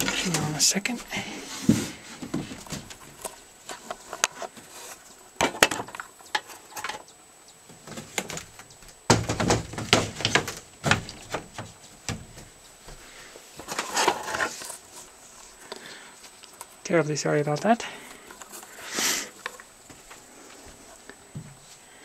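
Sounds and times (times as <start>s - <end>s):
wooden screen knocking and rattling: 7.7s - 12.6s.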